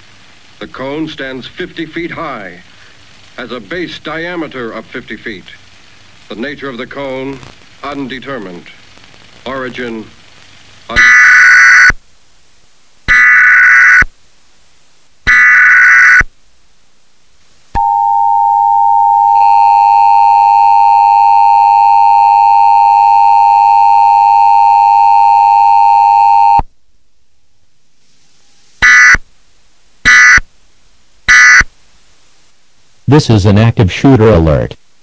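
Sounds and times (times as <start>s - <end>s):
two-tone attention signal: 17.8s - 26.6s.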